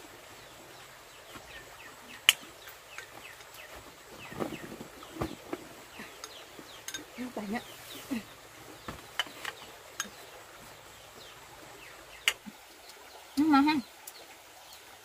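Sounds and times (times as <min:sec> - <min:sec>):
birds chirping: 0:00.0 - 0:15.0
light clinks and knocks: 0:02.9 - 0:07.3.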